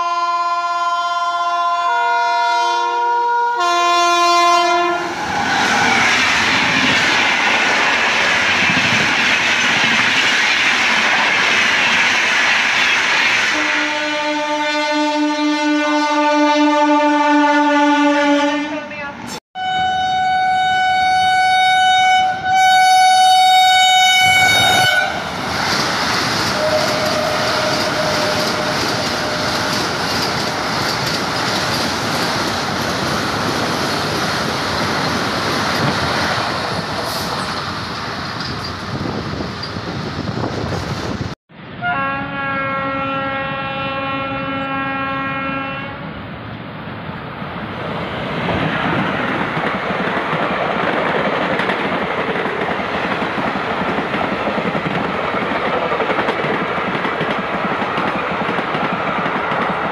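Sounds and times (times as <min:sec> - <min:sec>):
low locomotive horn: 0:00.0 - 0:05.2, 0:13.5 - 0:25.3, 0:26.6 - 0:29.9, 0:41.8 - 0:46.2
train horn: 0:00.0 - 0:05.2, 0:13.5 - 0:25.3, 0:26.6 - 0:29.9, 0:41.8 - 0:46.2
train wheels rushing on rail: 0:03.9 - 0:16.6, 0:23.6 - 0:59.9.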